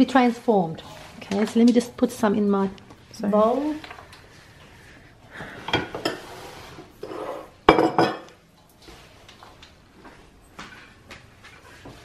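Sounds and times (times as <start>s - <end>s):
bowl scraping: 5.6s - 8.3s.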